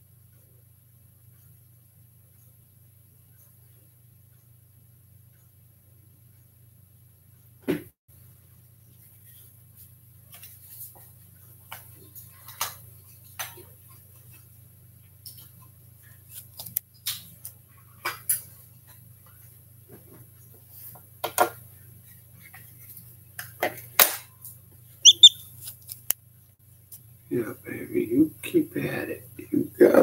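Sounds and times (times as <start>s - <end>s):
chick pecking at eggshell: 25.0s - 26.1s.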